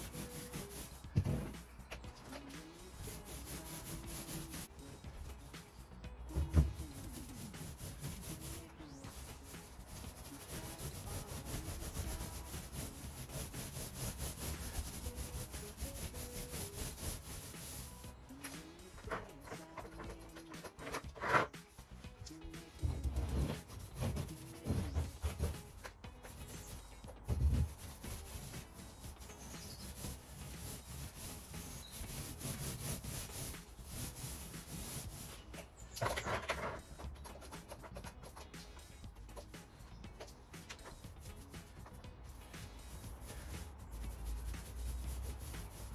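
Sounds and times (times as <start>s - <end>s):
paint roller rubbing on wall: 0.0s - 4.7s, 6.3s - 18.1s, 22.6s - 36.8s, 42.4s - 45.9s.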